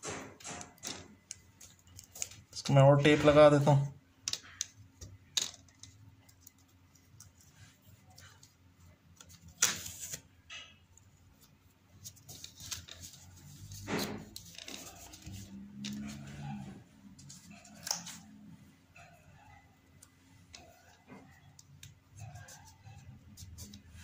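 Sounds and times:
tape clicks and rubs: 1.3s - 2.5s, 11.4s - 16.4s, 20.0s - 24.0s.

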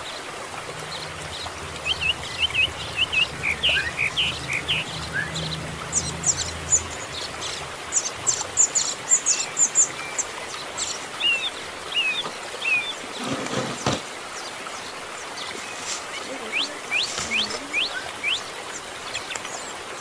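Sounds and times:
brief rustle or knock: 13.2s - 14.0s.

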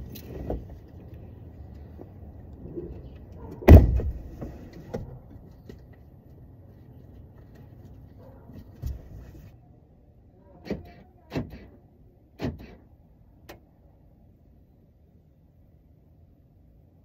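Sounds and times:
thud: 3.6s - 4.5s
sharp knocks inside truck cab: 3.6s - 5.1s.

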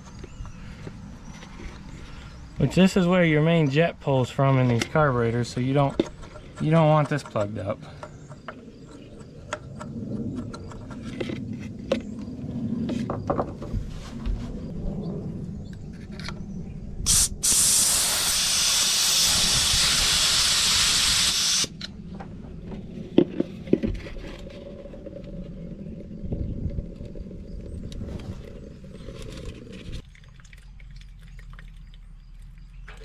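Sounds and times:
compressed air blow gun hissing: 17.1s - 21.7s.

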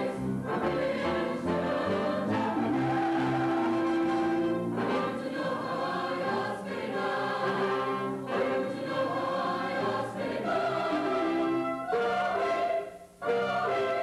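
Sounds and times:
choir singing sustained chords: 0.0s - 14.0s
brass accompaniment: 0.2s - 5.2s, 10.6s - 14.0s.

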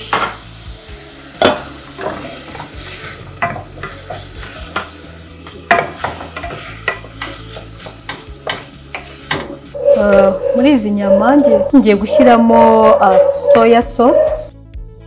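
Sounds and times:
meat sizzling in a pan: 0.0s - 10.2s.

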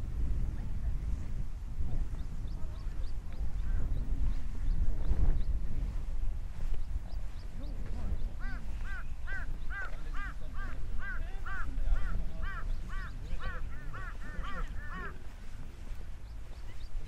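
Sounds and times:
crow cawing: 8.4s - 15.2s.

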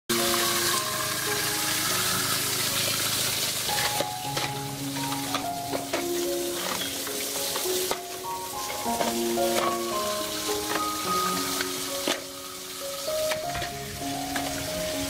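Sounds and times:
soft background music: 0.1s - 15.0s.

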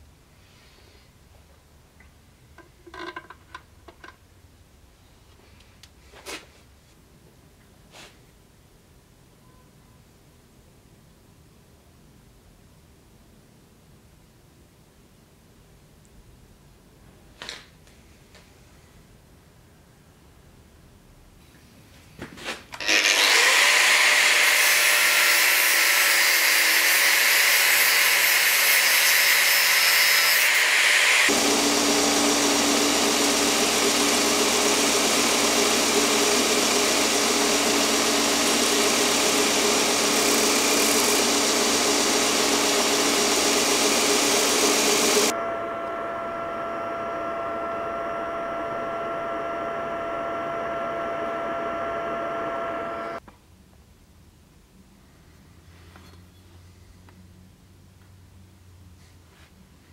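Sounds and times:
angle grinder sanding steel: 22.8s - 53.2s
belt grinder grinding steel: 22.8s - 53.2s
buffing wheel humming: 31.3s - 53.2s.

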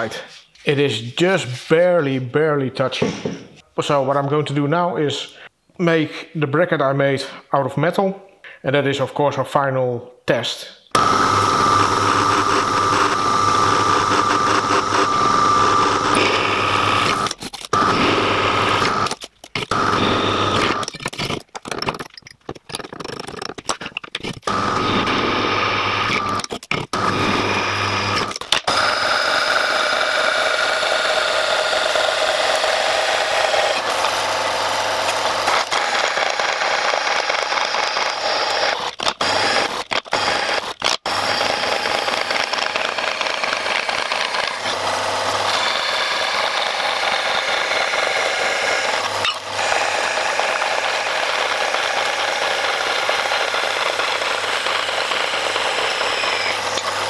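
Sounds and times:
bandsaw cutting metal: 11.0s - 21.4s, 24.2s - 57.0s.

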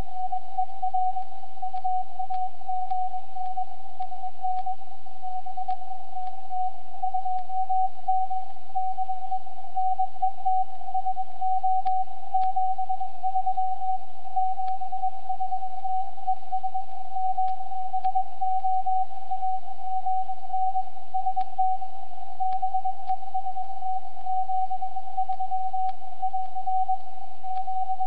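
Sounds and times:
faint clicks: 1.2s - 4.7s.

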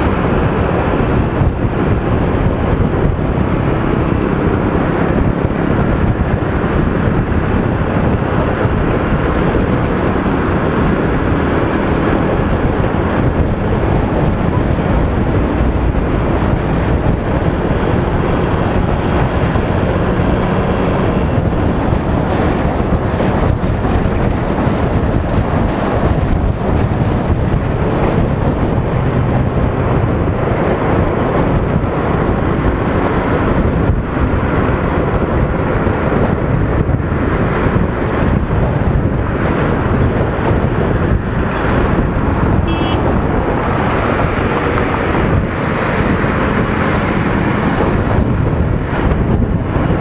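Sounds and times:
motorcycle engine: 0.0s - 50.0s
tyre noise on road: 0.0s - 50.0s
wind buffeting microphone: 0.0s - 50.0s.

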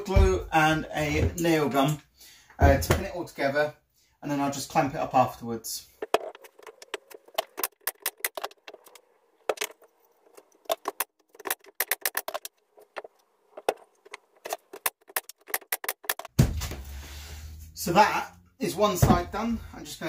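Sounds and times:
wooden strips knocking together: 6.0s - 16.9s.

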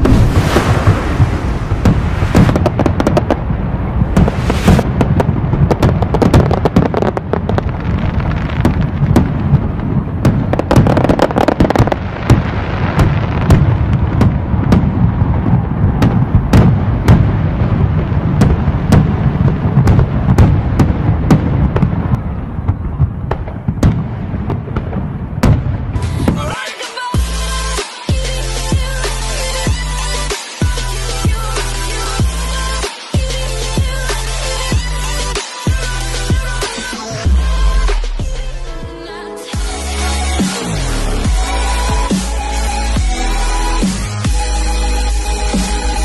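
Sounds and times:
fireworks booming and crackling: 0.0s - 27.1s
sharp fireworks crackles: 0.0s - 27.2s.

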